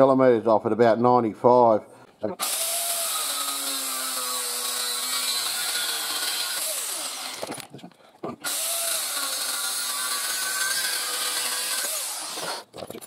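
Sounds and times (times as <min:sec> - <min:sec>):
angle grinder cutting steel: 0:02.4 - 0:07.6, 0:08.4 - 0:12.7.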